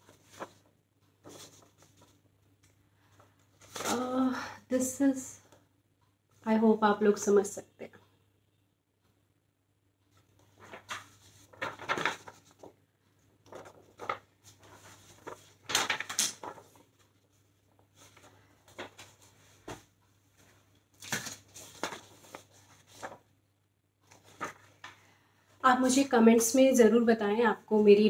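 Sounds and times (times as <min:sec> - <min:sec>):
paper rustling and scraping: 0:00.0 - 0:02.2, 0:03.6 - 0:04.0, 0:10.4 - 0:12.7, 0:13.4 - 0:23.2, 0:24.1 - 0:25.0.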